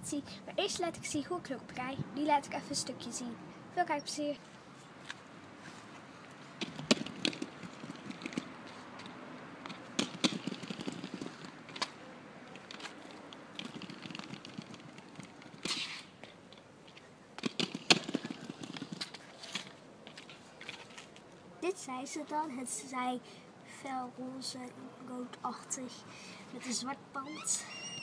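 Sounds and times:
plastic wheels rolling over concrete: 6.6s - 8.6s, 9.7s - 11.9s, 12.6s - 16.0s, 17.4s - 21.1s.

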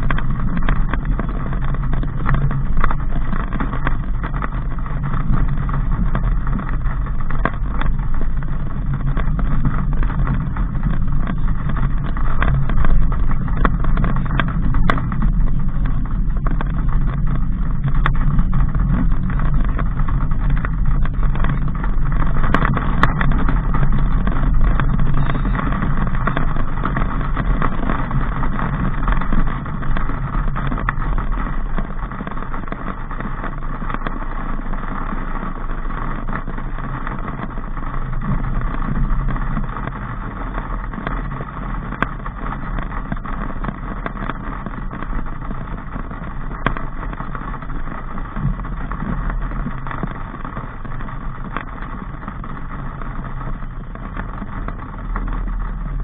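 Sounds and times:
car engine hum: 0.0s - 56.0s
road noise: 0.0s - 56.0s.

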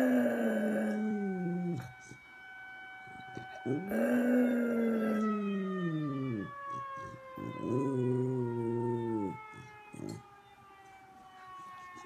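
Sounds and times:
dog howling: 0.0s - 1.9s, 3.6s - 10.2s
tornado siren: 0.0s - 12.0s.

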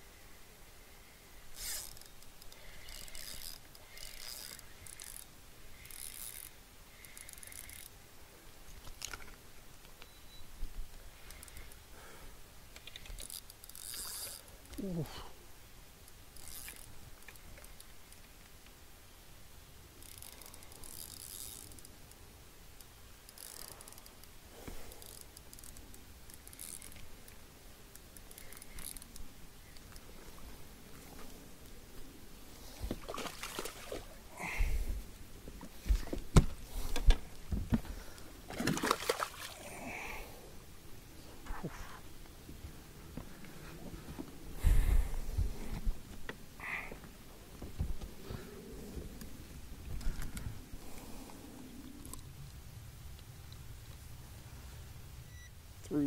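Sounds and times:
fishing reel gear whirring: 1.6s - 8.0s, 12.9s - 14.9s, 16.3s - 17.8s, 20.0s - 21.9s, 23.2s - 24.3s, 25.0s - 27.0s, 27.9s - 29.2s.

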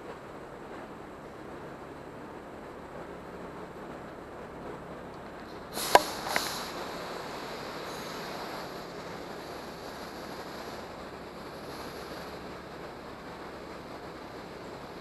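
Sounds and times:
rushing air: 5.4s - 15.0s.

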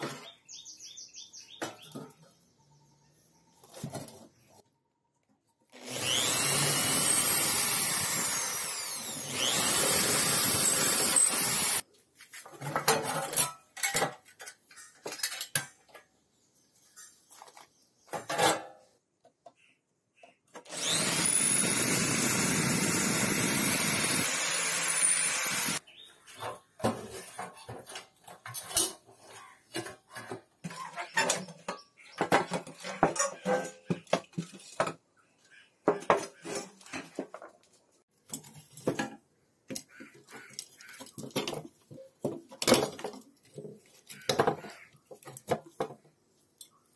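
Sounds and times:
power tool grinding metal: 5.8s - 11.8s, 20.6s - 25.8s.

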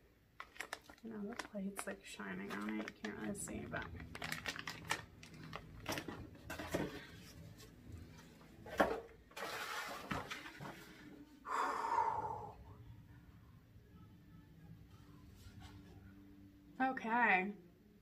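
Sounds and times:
plastic bag and paper rustling: 0.4s - 11.1s
paper sheet unfolding rustle: 9.4s - 11.1s.

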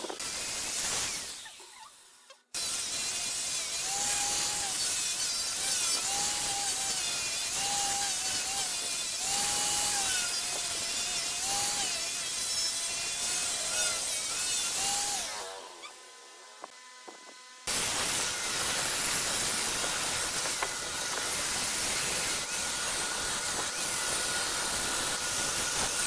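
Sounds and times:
angle grinder motor whine: 3.7s - 26.0s
sanding disc rasping on wood: 17.0s - 26.0s.

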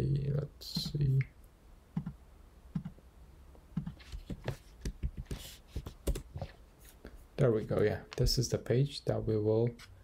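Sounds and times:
keyboard and mouse clicks: 2.0s - 3.0s.

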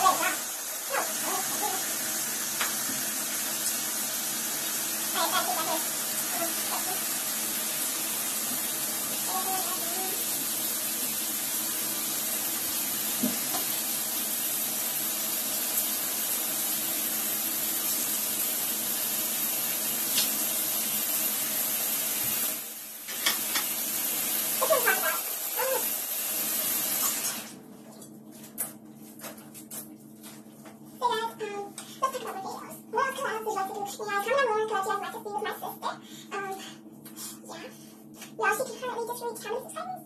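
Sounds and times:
water running into bathtub: 0.0s - 27.7s.

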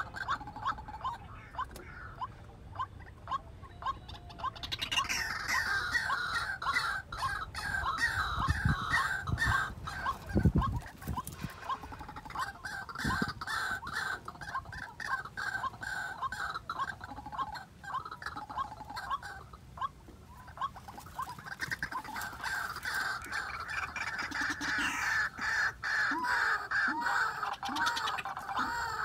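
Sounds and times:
waterhens calling: 0.0s - 29.0s.

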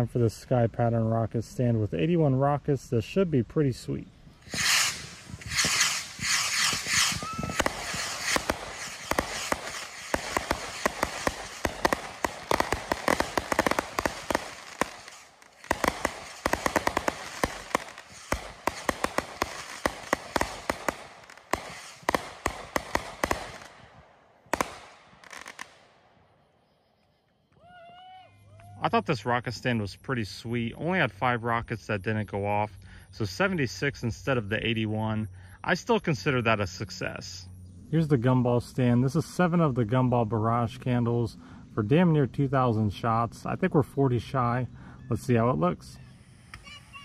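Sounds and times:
rockets hissing launches: 4.4s - 23.8s
firework pops and cracks: 4.4s - 25.9s.

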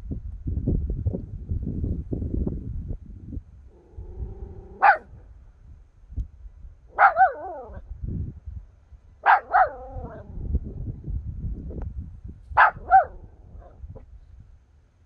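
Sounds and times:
puppy yapping: 4.7s - 5.1s, 7.0s - 7.8s, 9.2s - 10.2s, 12.6s - 13.7s.

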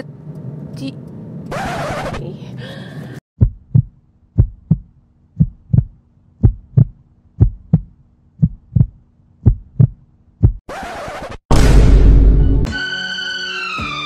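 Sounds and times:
heartbeat double thumps: 3.4s - 10.7s.

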